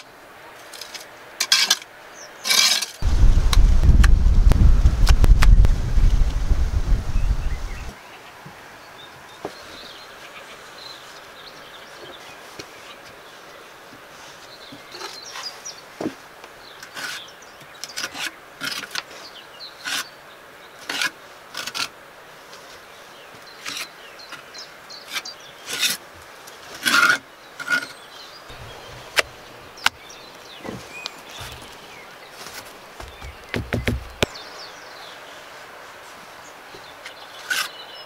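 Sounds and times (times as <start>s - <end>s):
bricks knocking and clicking: 33.0s - 34.3s.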